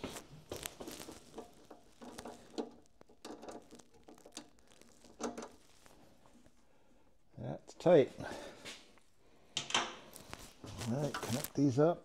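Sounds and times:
hands tightening nut clicks and taps: 0.9s - 5.6s.

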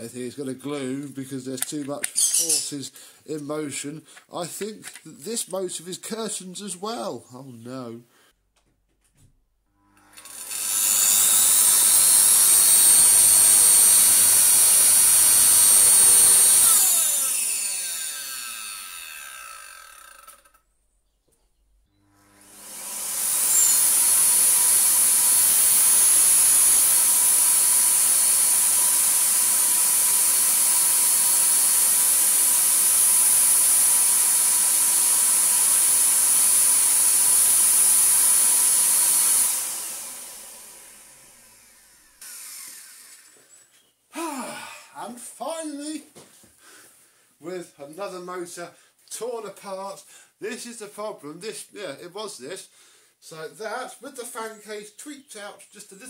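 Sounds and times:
vacuum cleaner motor whining: 9.8s - 19.5s, 22.0s - 43.5s.

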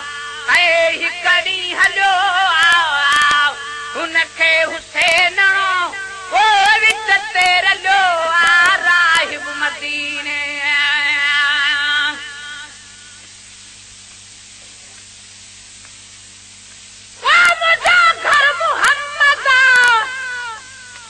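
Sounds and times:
faint steady hum and hiss: 0.0s - 21.0s
person singing solo: 17.2s - 21.0s.

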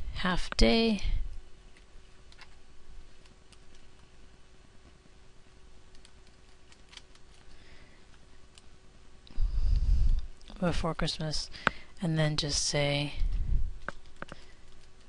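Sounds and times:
faint steady hum: 0.0s - 15.0s
faint keyboard keystrokes: 13.8s - 15.0s.

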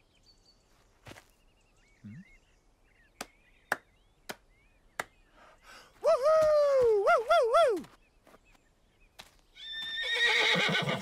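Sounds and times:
faint bird chirps: 0.0s - 6.0s.

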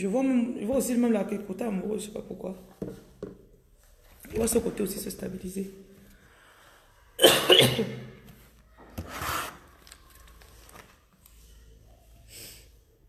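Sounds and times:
woman coughing: 7.2s - 8.2s.

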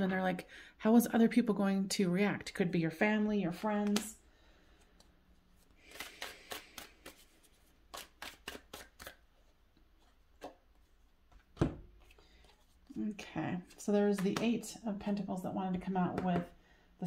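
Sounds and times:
cards being shuffled: 3.6s - 4.2s, 4.8s - 13.0s.

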